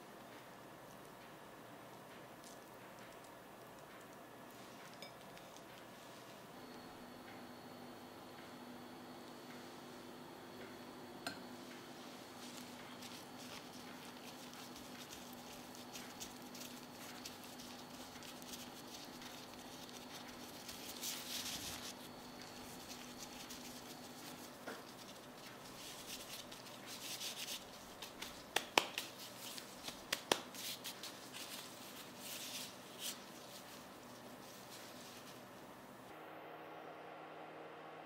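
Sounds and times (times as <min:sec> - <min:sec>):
faint low hum: 0:00.0 - 0:38.0
plastic gloves rustling: 0:11.6 - 0:36.1.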